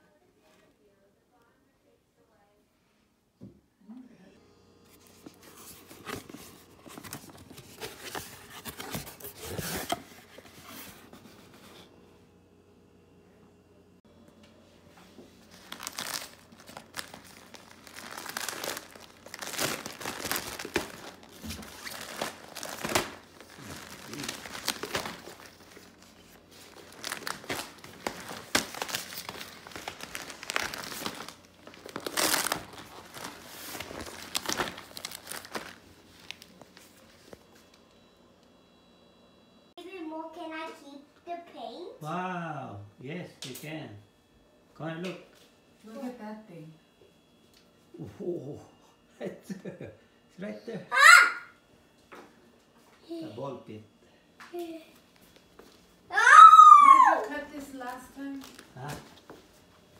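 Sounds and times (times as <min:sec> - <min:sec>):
plastic packaging crinkling: 0:15.4 - 0:37.4, 0:57.8 - 0:59.3.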